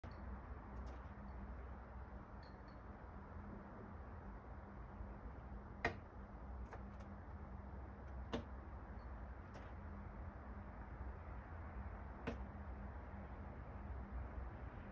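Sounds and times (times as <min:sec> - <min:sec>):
faint low hum: 0:00.0 - 0:14.9
dove pecking taps: 0:12.2 - 0:12.5.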